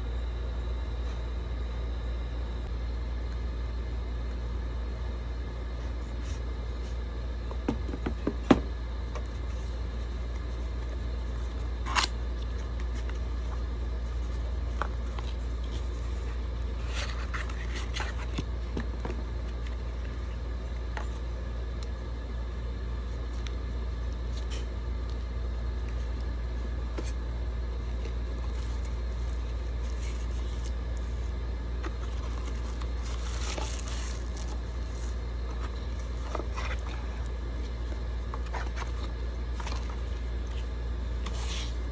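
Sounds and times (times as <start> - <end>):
steady low hum: 0.0 - 41.9
paper and plastic rustling: 11.3 - 20.3, 27.9 - 31.2, 31.8 - 41.9.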